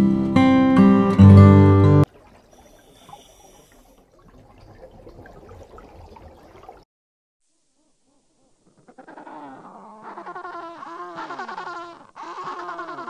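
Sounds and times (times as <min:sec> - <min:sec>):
aquarium water trickling: 0:02.0 - 0:06.8
penguin calls: 0:08.6 - 0:13.0.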